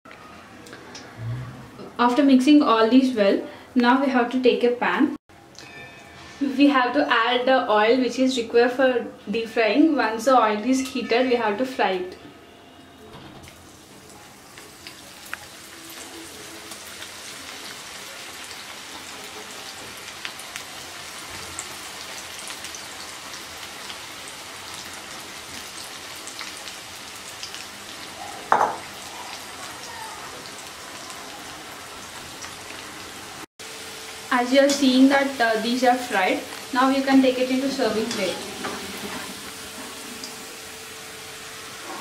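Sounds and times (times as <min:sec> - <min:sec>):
food deep-frying in oil: 0:13.4 - 0:42.0.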